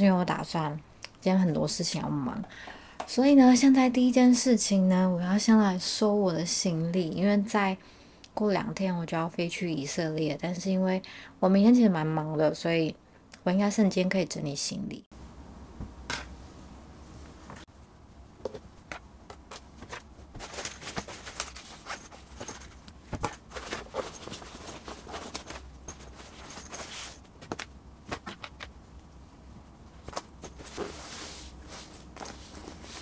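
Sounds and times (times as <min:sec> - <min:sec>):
fabric rustling: 0:16.5 - 0:28.8, 0:29.8 - 0:33.0.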